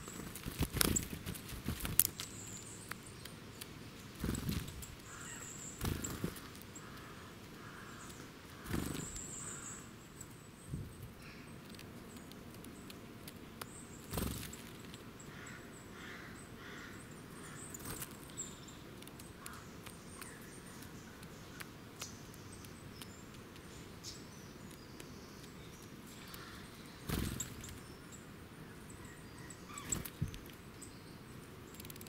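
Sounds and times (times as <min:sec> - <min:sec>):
bird wing flutters: 0:00.1 - 0:02.2, 0:04.2 - 0:04.9, 0:05.8 - 0:06.6, 0:08.6 - 0:09.2, 0:14.1 - 0:14.8, 0:27.0 - 0:27.8
bird pecking ticks: 0:00.1 - 0:09.6, 0:11.5 - 0:27.8, 0:29.8 - 0:30.6, 0:31.5 - 0:32.0
faint bird chirps: 0:02.2 - 0:12.3, 0:13.6 - 0:32.0.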